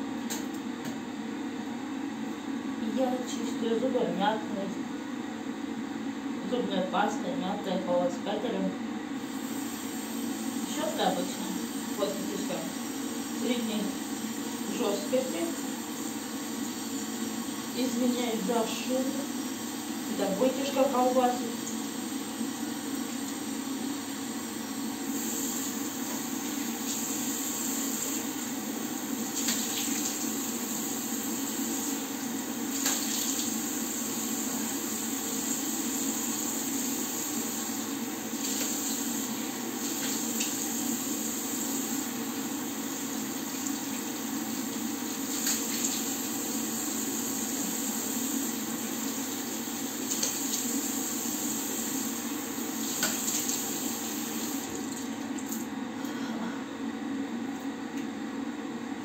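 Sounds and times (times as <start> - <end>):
tap water running into basin: 21.4 - 55.7.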